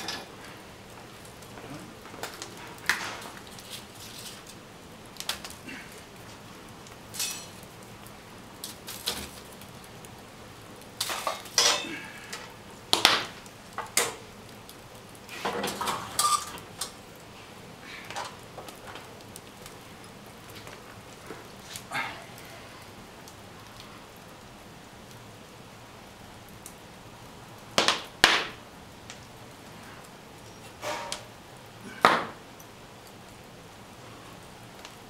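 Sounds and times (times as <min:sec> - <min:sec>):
metal fireplace fittings clanking: 0:00.0 - 0:00.5, 0:07.1 - 0:07.6, 0:11.0 - 0:14.2, 0:15.3 - 0:17.0, 0:30.4 - 0:31.3
log fire crackling: 0:00.0 - 0:35.0.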